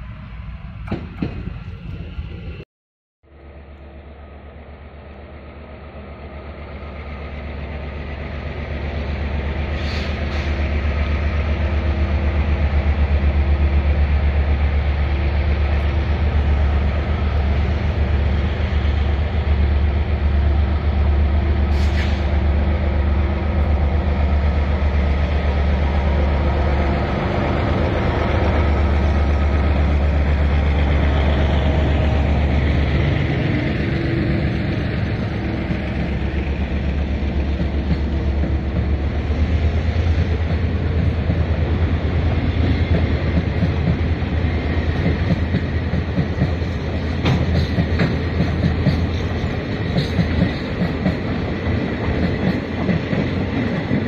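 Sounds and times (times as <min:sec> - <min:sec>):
locomotive engine hum: 0:03.3 - 0:54.0
short hissing: 0:09.7 - 0:10.6, 0:21.7 - 0:22.4.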